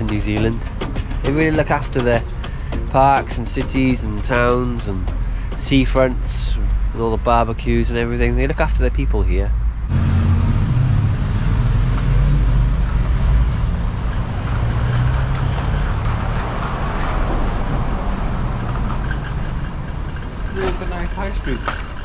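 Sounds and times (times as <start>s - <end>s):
scooter wheels rolling on pavement: 0.0s - 8.6s, 12.8s - 22.0s.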